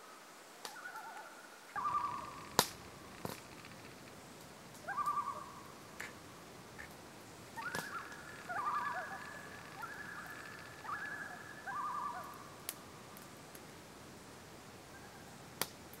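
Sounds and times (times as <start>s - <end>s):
loons wailing and tremolo calls: 0.7s - 6.0s, 7.4s - 13.2s.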